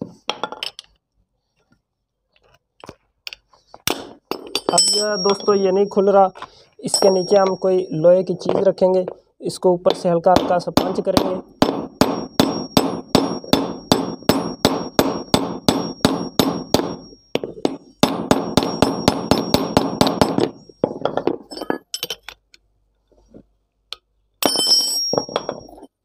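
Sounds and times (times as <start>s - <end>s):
hammer striking metal spanner: 3.9s - 6.2s, 6.8s - 8.8s, 9.9s - 22.3s, 24.4s - 25.8s.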